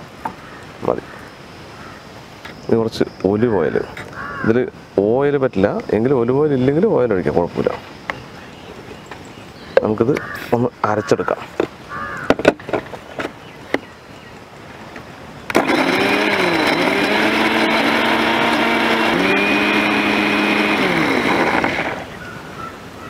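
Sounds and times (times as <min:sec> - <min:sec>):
electric mixer grinder running: 0:15.5 - 0:22.2.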